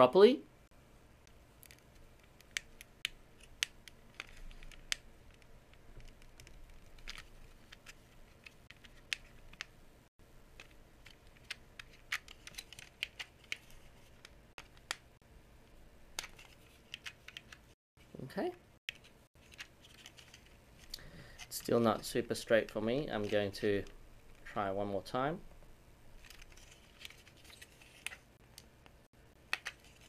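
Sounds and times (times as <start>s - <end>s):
small plastic clicks and scrapes: 1.2s - 9.7s, 29.5s - 30.0s.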